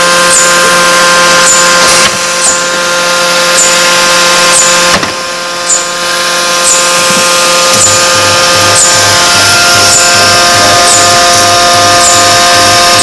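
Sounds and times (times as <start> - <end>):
forging machine humming: 0.0 - 13.0
short high chirp: 5.6 - 6.0.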